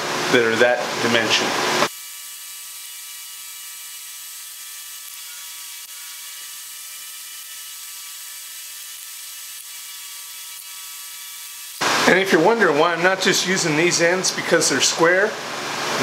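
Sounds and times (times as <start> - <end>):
electric fan whirring: 0.0 - 16.0.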